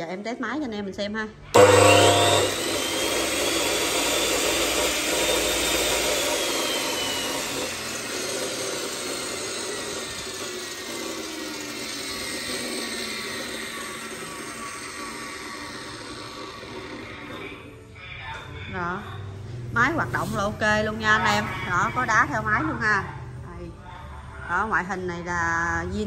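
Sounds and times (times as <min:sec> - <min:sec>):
cut-off saw whine coasting down: 0:01.6 - 0:17.7.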